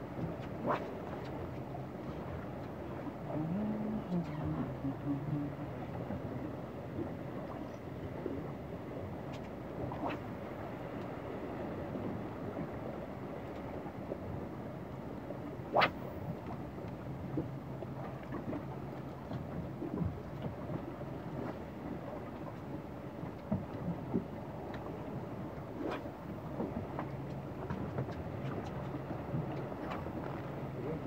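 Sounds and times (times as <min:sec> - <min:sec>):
boat engine running low: 0:00.0 - 0:31.0
water noise: 0:00.0 - 0:31.0
wind: 0:00.0 - 0:31.0.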